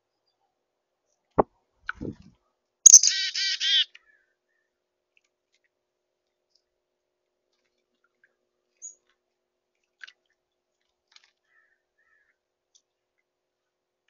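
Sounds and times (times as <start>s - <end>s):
short high bird chirp: 2.9s - 3.8s.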